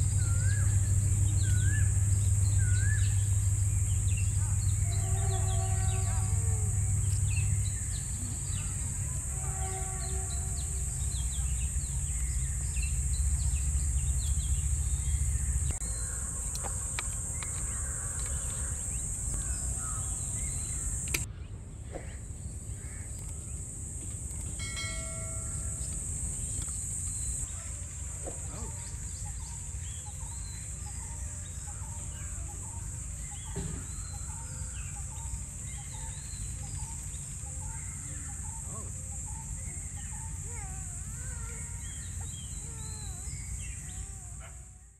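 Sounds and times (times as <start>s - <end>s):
low rumble: 0.0s - 9.4s
insect drone: 0.0s - 21.3s, 22.1s - 44.9s
bird calls: 0.0s - 44.9s.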